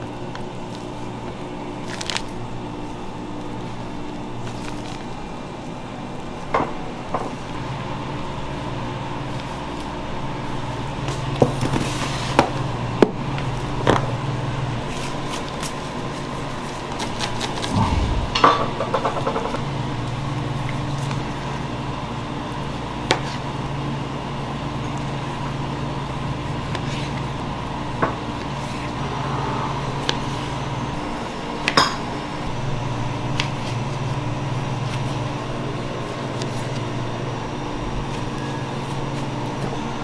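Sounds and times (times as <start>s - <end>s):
steady machine hum: 17.7s - 19.8s.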